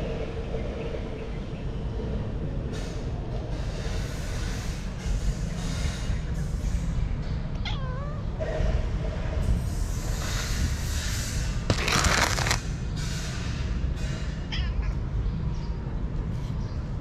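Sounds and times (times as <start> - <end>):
steady low rumble: 0.0 - 13.1
cat meowing: 7.6 - 8.4, 14.5 - 15.1.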